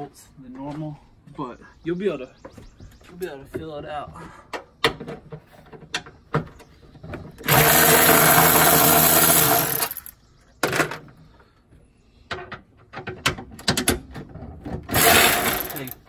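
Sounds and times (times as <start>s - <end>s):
electric ratchet running: 7.4s - 10.1s, 14.9s - 16.0s.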